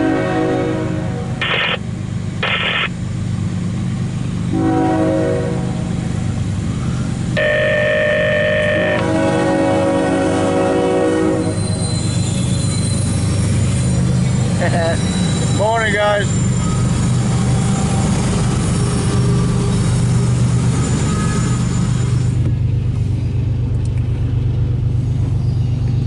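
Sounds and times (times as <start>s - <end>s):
locomotive air horn blasts: 0.0s - 1.4s, 4.5s - 5.9s, 7.4s - 11.7s
low rumble of locomotive: 0.0s - 26.0s.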